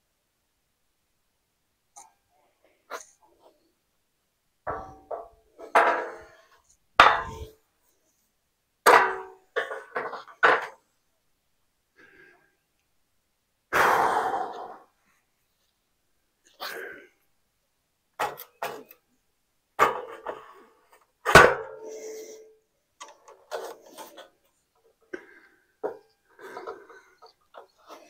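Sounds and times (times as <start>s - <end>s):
steel beam clanking and knocking: 7.0s - 7.5s.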